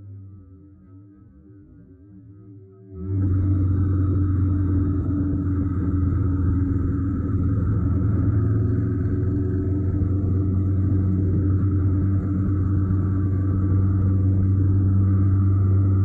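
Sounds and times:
motorcycle engine running steadily: 0:03.0 - 0:16.0.

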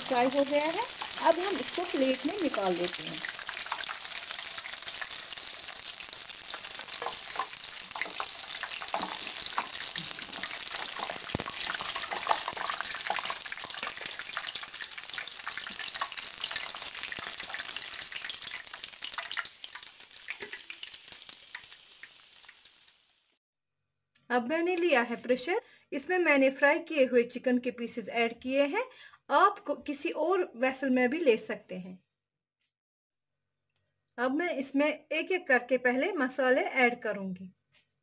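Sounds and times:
chicken deep-frying in oil: 0:00.0 - 0:23.4.

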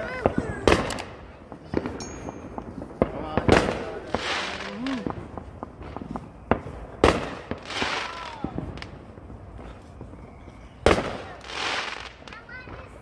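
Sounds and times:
firework crackling hiss: 0:00.0 - 0:13.0
small firework pops: 0:00.0 - 0:13.0
loud firework bang: 0:00.1 - 0:08.9.

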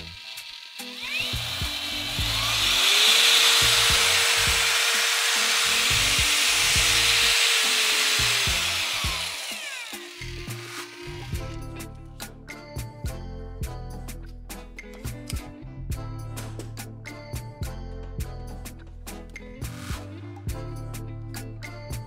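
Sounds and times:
paddle mixer motor whining: 0:00.0 - 0:11.6.

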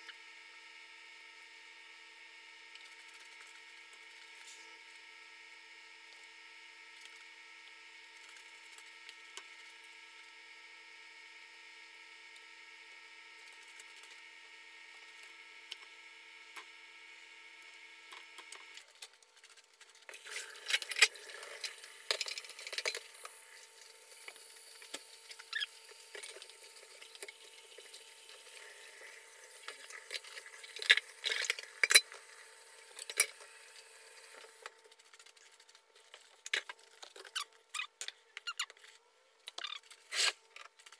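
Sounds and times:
steady hum with held pitches: 0:00.0 - 0:38.4
water running in sink: 0:19.9 - 0:35.4.

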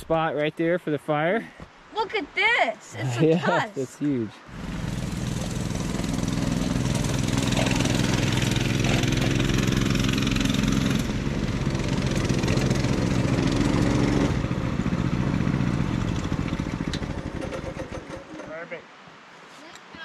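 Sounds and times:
small engines running at low speed: 0:04.5 - 0:18.4.

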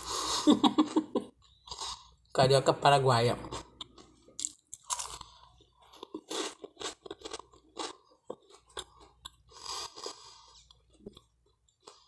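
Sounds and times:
crunching and chewing toast: 0:03.6 - 0:12.0.

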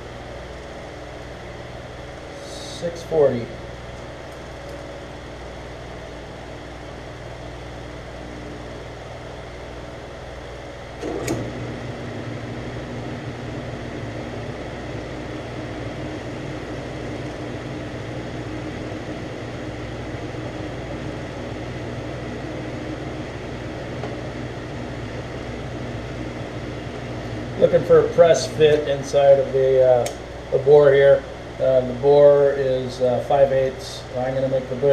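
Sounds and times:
metal lathe running: 0:08.0 - 0:34.2
click: 0:11.0 - 0:11.5, 0:30.0 - 0:30.2.

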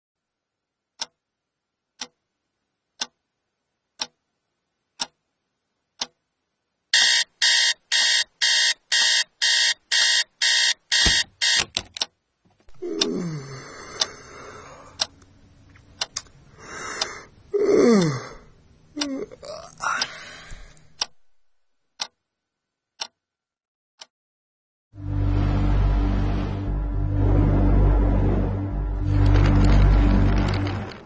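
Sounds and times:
clock ticking: 0:00.9 - 0:01.2, 0:01.9 - 0:02.2, 0:02.9 - 0:03.3, 0:03.9 - 0:04.2, 0:04.9 - 0:05.3, 0:05.9 - 0:06.3, 0:07.0 - 0:12.2, 0:15.0 - 0:15.3, 0:15.9 - 0:16.4, 0:20.0 - 0:21.4, 0:22.0 - 0:22.2, 0:23.0 - 0:23.2
electronic alarm beeping: 0:07.0 - 0:11.7.

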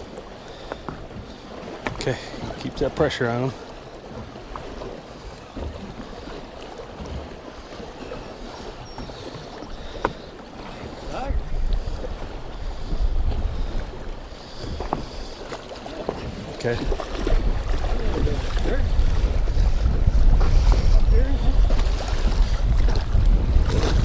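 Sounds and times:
water slapping against boat hull: 0:00.0 - 0:24.0
wind rumbling on microphone: 0:07.0 - 0:24.0.

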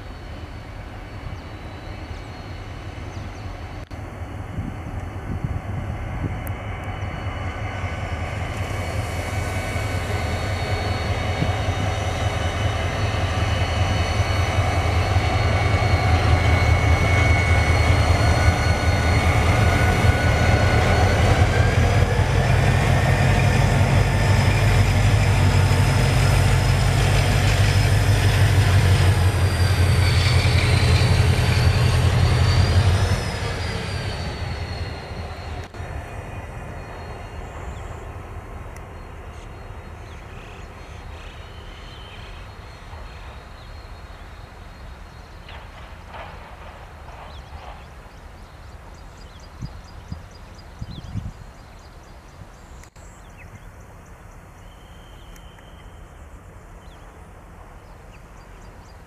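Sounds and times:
locomotive engine rumble: 0:00.0 - 0:41.2.

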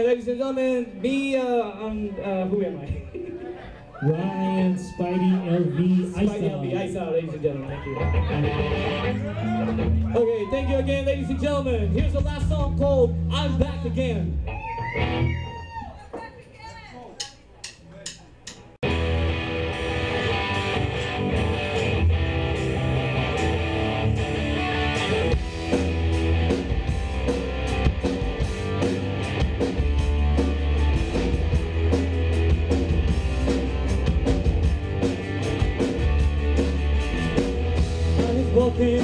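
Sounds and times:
bass guitar line: 0:01.6 - 0:15.8, 0:18.8 - 0:39.0
electric guitar: 0:07.7 - 0:10.2, 0:14.3 - 0:15.8, 0:18.8 - 0:39.0
drum kit beat: 0:11.8 - 0:14.2, 0:17.2 - 0:39.0.

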